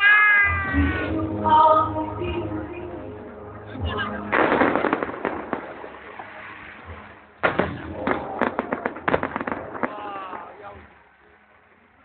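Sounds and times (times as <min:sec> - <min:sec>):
firework bangs: 0:04.3 - 0:11.1
firework crackling pops: 0:04.4 - 0:10.9.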